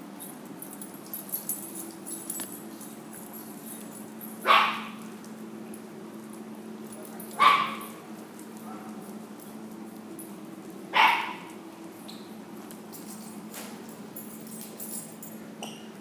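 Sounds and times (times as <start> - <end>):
small dog barking: 4.4 - 5.0, 7.4 - 7.9, 8.6 - 9.0, 10.9 - 11.5.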